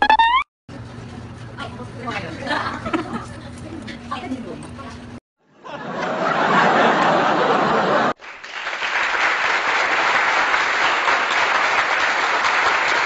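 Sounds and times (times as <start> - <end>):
many hands clapping: 8.2 - 13.0.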